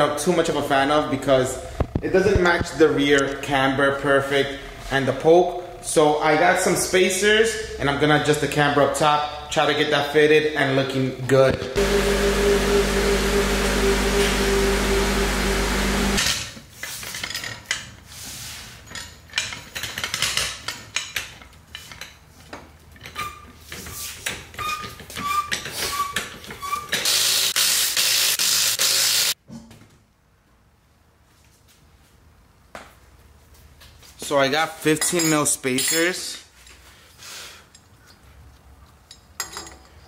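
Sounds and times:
floor jack clicking and squeaking: 19.0s - 27.2s.

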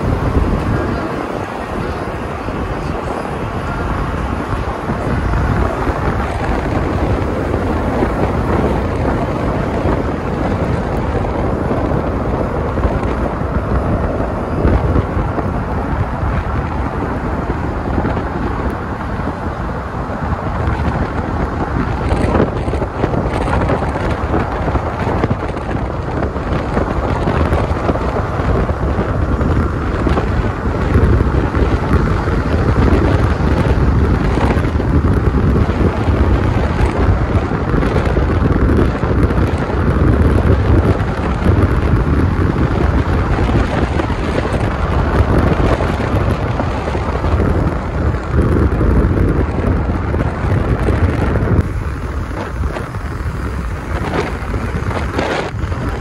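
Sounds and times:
car road and wind noise: 0.0s - 56.0s.

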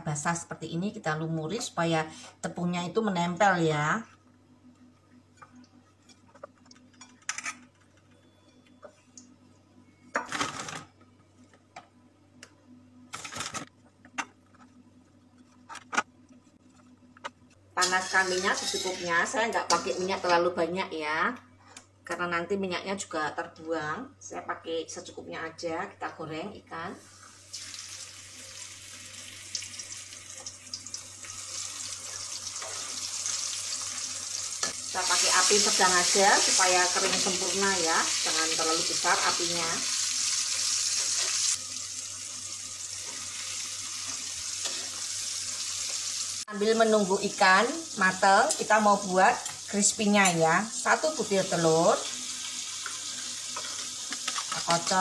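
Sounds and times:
fish sizzling in hot oil: 27.1s - 50.1s, 50.7s - 55.0s.

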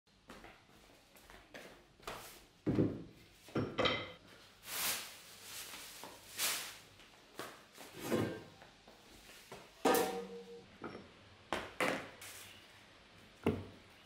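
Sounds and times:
plastic bag crackling: 4.6s - 7.0s.

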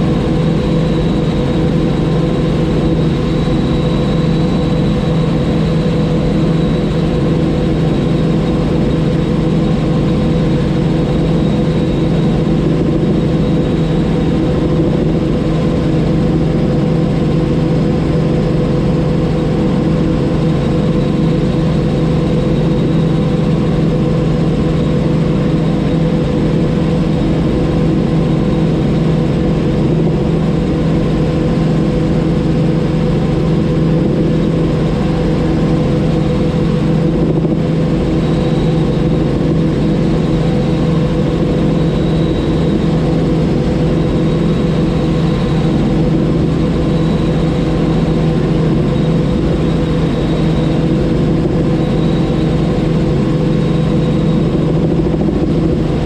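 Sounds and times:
helicopter engine and rotors: 0.0s - 56.0s.

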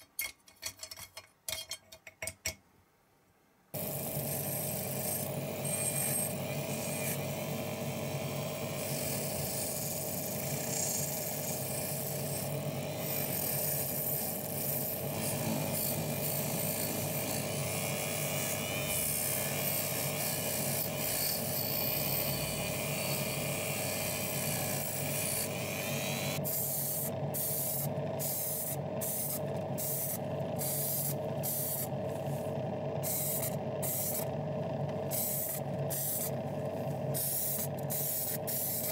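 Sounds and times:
rotary tool wire brush on metal: 8.8s - 34.3s, 35.1s - 38.9s
steady hum: 19.9s - 38.9s.

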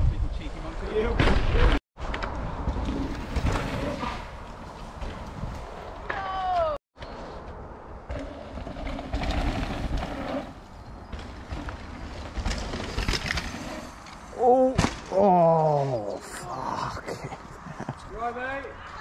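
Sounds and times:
wind noise: 0.0s - 14.0s
bike tyres rolling on dirt: 2.0s - 14.4s.

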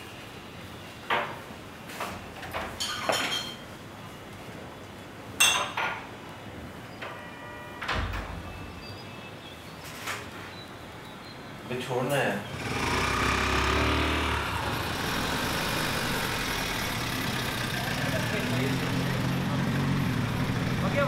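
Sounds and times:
steady room hiss: 0.0s - 21.0s
dishes and utensils clinking: 2.7s - 3.7s
brief ringing tone: 7.2s - 7.9s.

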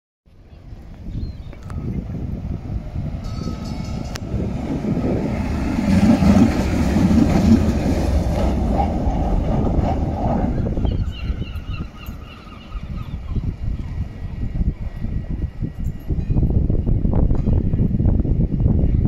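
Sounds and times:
tram wheels rumbling on rails: 0.4s - 19.0s.

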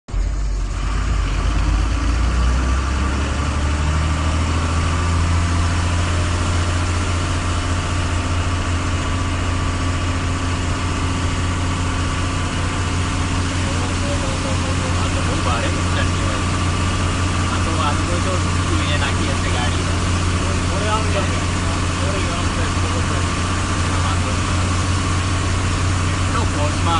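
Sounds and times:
truck engine humming: 0.1s - 26.9s.

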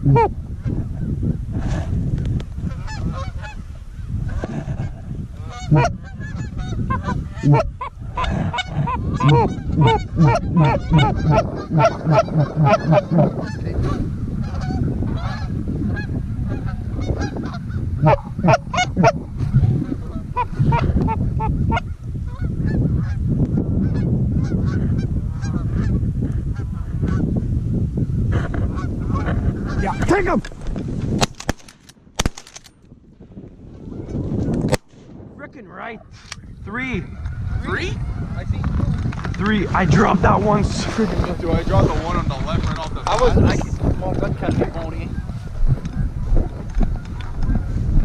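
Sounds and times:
geese honking: 0.0s - 0.3s, 5.4s - 15.5s, 16.5s - 22.5s.

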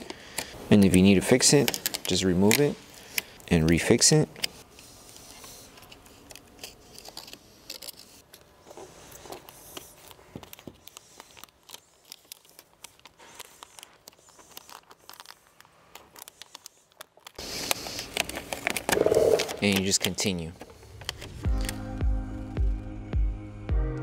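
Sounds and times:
vinyl film crinkling: 9.8s - 19.0s.

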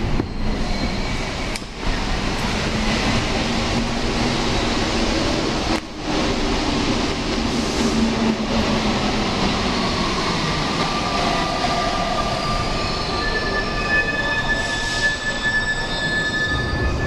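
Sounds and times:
high squeal: 0.0s - 2.0s, 9.7s - 17.0s
subway train rumbling: 0.0s - 17.0s.

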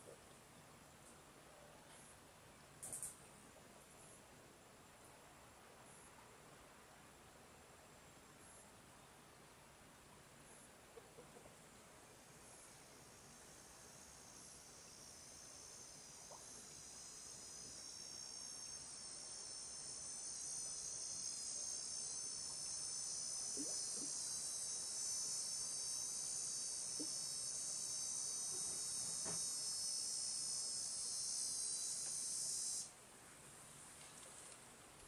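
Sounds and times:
shrill insect drone: 12.5s - 32.9s.

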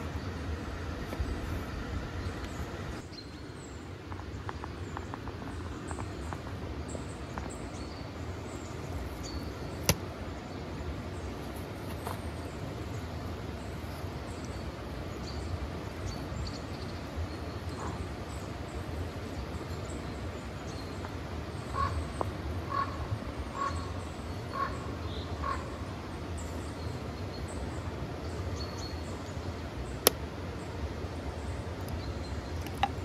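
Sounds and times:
low background hiss: 0.0s - 33.0s.

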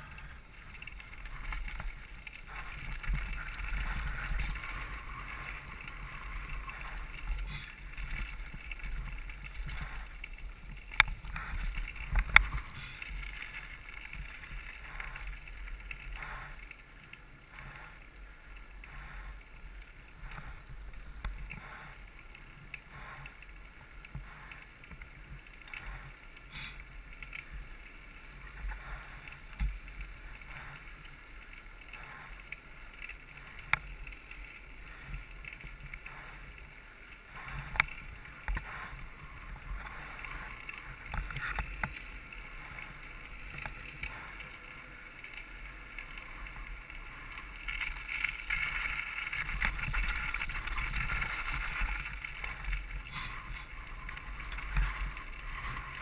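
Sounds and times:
bike tyre rumble: 0.0s - 56.0s
tyres on loose gravel: 0.0s - 56.0s
wind noise: 37.2s - 56.0s.

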